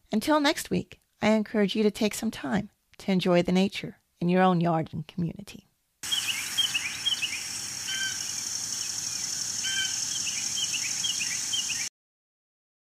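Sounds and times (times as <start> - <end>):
songbirds chirping: 6.0 - 11.9
whistled bird notes: 6.0 - 11.9.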